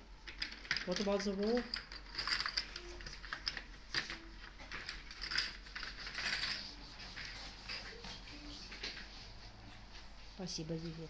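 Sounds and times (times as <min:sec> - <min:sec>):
pencil scratching on paper: 0:06.4 - 0:11.0.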